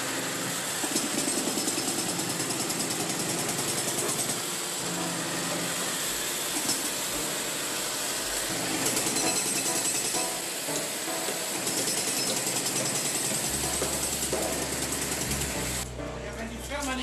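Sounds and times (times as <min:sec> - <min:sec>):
machinery engine running: 0:13.4 - 0:16.6.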